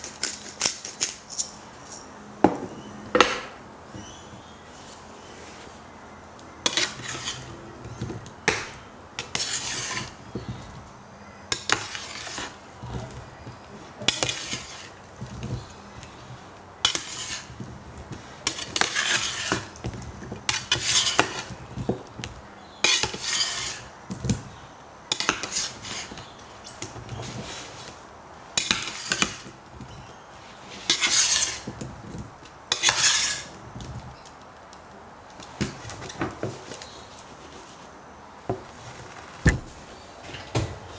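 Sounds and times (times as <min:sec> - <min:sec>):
metal spatula scraping metal pan: 0:06.6 - 0:07.5, 0:09.3 - 0:10.2, 0:16.8 - 0:17.6, 0:18.4 - 0:19.7, 0:20.5 - 0:21.5, 0:22.8 - 0:23.9, 0:30.8 - 0:31.6, 0:32.7 - 0:33.5.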